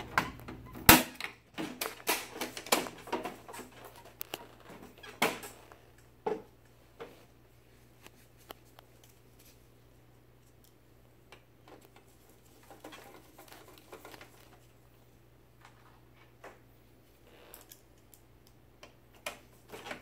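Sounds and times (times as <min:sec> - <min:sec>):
plastic parts clicking and knocking: 0:00.0 - 0:07.2, 0:11.3 - 0:14.6.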